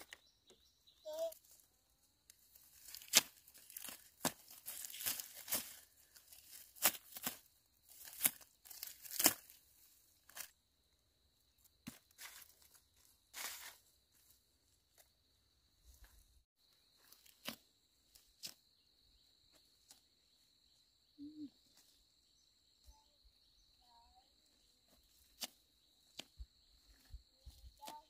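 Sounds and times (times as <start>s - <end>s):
weeds being pulled from dry soil: 2.3s - 10.5s, 11.8s - 14.4s.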